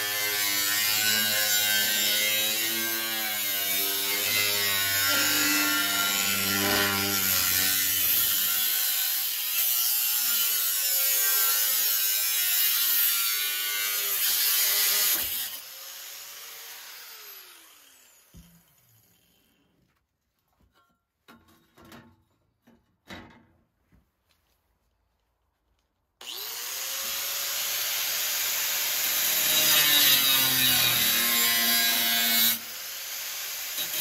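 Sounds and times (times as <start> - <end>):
power tool cutting: 0.0 - 18.4, 26.2 - 34.0.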